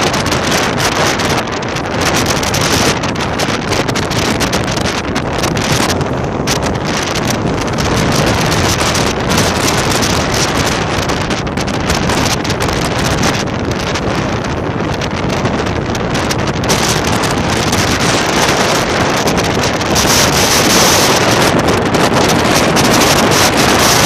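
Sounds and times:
choppy sea surf: 0.0 - 24.0
strong wind on microphone: 0.0 - 24.0.

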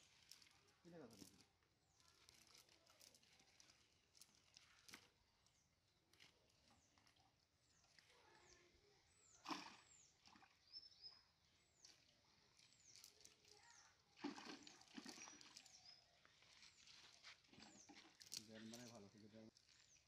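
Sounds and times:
wet net rustling: 12.6 - 19.0.

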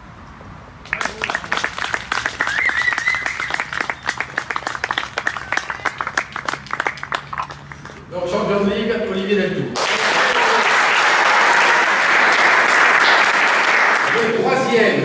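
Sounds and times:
spectators clapping: 0.8 - 8.0, 9.8 - 14.4.

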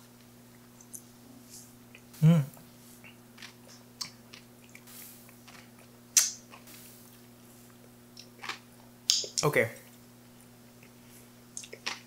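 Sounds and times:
soft mouth clicks: 11.6 - 12.0.

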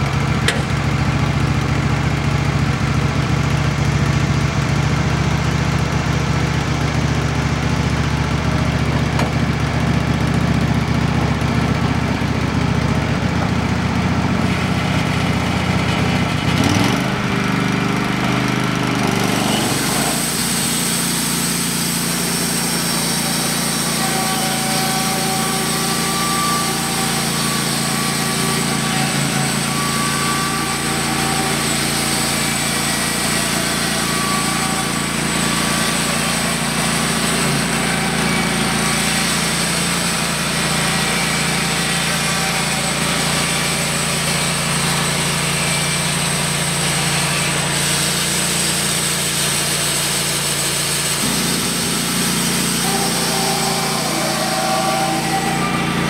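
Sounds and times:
saw cutting log: 0.0 - 56.0
sawmill engine running: 0.0 - 56.0
thin high whine: 51.2 - 56.0.

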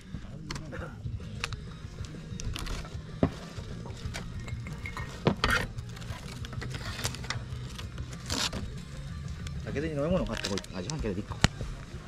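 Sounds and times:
tableware clinking and knocking: 4.1 - 5.7.

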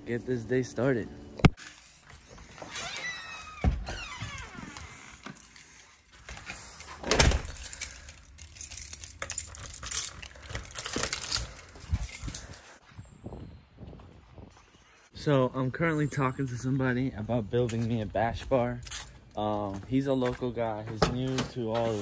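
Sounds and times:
front door shutting: 2.5 - 5.6, 6.2 - 7.8
keys jangling in a lock: 4.7 - 12.8.

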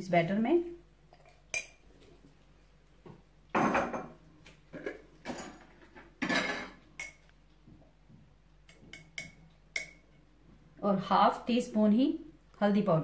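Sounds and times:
dishes clinking and scraping: 3.6 - 7.3
utensils clattering: 4.8 - 7.2.

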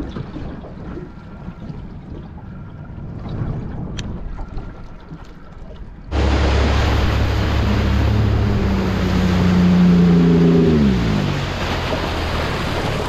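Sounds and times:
water rushing along hull: 0.0 - 13.0
outboard motor running: 5.8 - 13.0.

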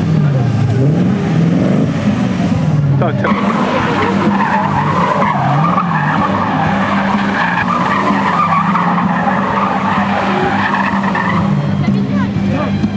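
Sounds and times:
sports car engine: 0.0 - 12.9
tyres squealing: 3.2 - 12.9.

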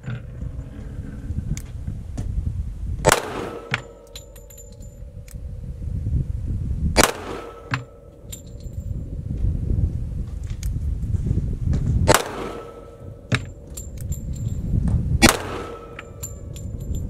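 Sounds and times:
pistol shots: 3.0 - 4.5, 7.0 - 8.1, 12.1 - 13.6, 15.2 - 16.4
brass casings clinking: 3.1 - 5.3, 7.0 - 9.0, 12.2 - 17.0.

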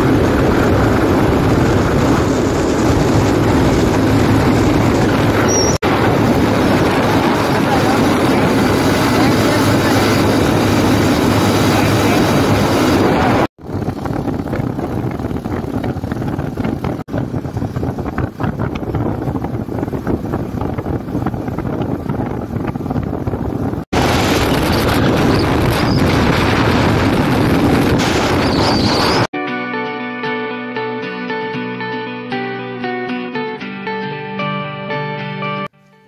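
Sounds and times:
motorcycle engine: 0.0 - 29.3
wind buffeting microphone: 0.0 - 29.3
acoustic guitar music: 29.4 - 36.0.

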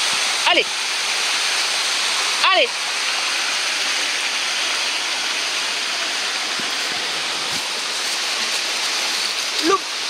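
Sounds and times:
mountain torrent rushing over rocks: 0.0 - 10.0.

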